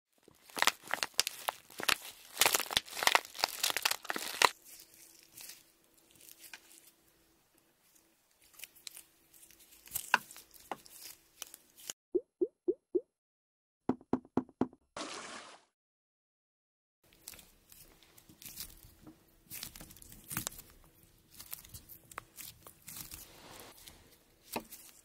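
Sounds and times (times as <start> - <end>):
plastic bags crinkling: 0.2 - 6.9.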